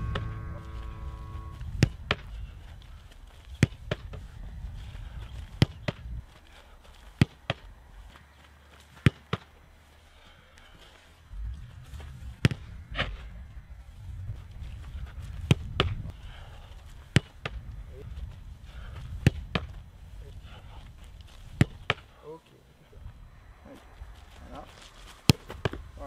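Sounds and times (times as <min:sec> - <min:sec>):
ball kicked and caught in gloves: 0:05.6 - 0:06.0, 0:07.2 - 0:07.6, 0:09.0 - 0:09.5, 0:12.4 - 0:13.1, 0:17.1 - 0:17.6, 0:21.5 - 0:22.1, 0:25.3 - 0:25.8.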